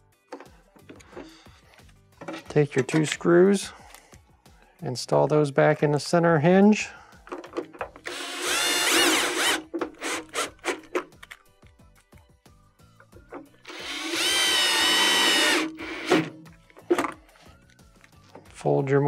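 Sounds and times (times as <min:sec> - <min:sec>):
cordless drill motor whining: 0:08.0 - 0:10.8, 0:13.6 - 0:16.3.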